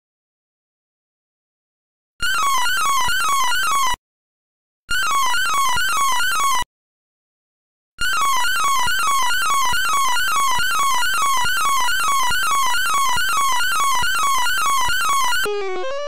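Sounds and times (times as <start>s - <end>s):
harsh buzzing tone: 8.0s - 16.0s.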